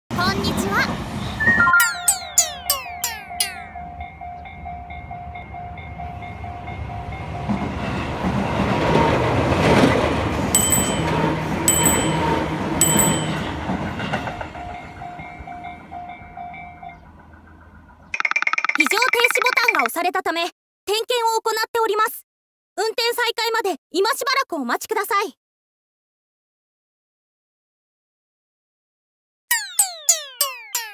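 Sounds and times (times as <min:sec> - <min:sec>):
train rumble: 0:00.1 - 0:01.4, 0:03.6 - 0:18.1
level-crossing warning bell ringing: 0:01.5 - 0:09.2, 0:10.5 - 0:18.4
sharp wheel clacks: 0:10.6 - 0:14.4, 0:18.2 - 0:19.9.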